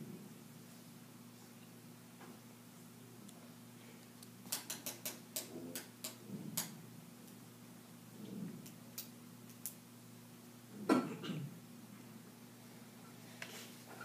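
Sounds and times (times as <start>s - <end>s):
low room hum: 0.0s - 14.0s.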